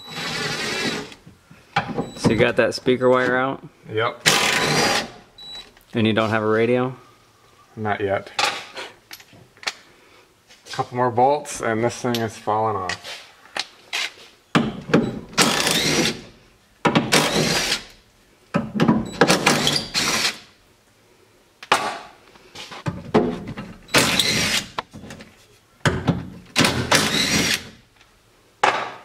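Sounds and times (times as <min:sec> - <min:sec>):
cordless drill bursts: 0:00.0 - 0:01.1, 0:04.3 - 0:05.1, 0:15.4 - 0:16.2, 0:17.1 - 0:17.9, 0:19.4 - 0:20.5, 0:23.9 - 0:24.7, 0:26.9 - 0:27.7.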